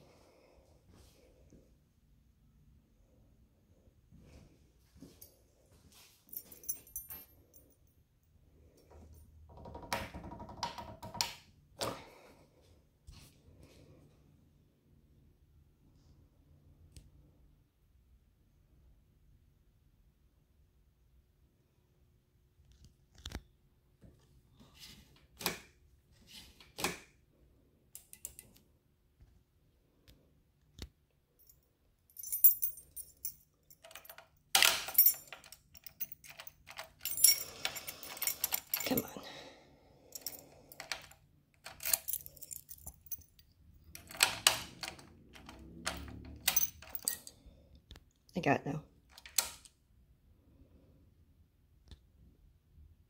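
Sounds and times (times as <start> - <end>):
keys jangling: 6.3 - 7.8, 32.2 - 39.2, 40.0 - 47.4.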